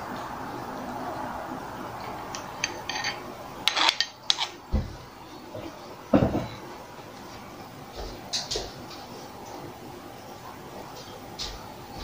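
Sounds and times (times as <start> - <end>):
spoon scraping plastic bowl: 2.6 - 4.6
kitchenware knocking and clacking: 6.1 - 6.6.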